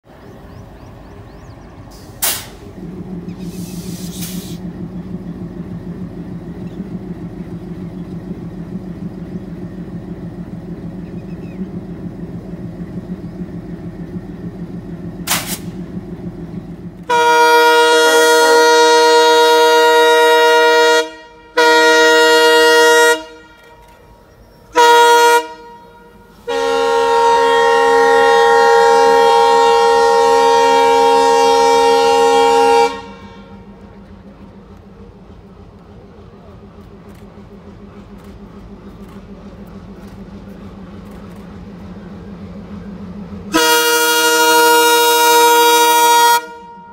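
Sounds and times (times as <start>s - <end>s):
diesel locomotive engine throbbing: 0.0s - 46.9s
locomotive horn blasts: 17.0s - 34.2s, 43.4s - 46.9s.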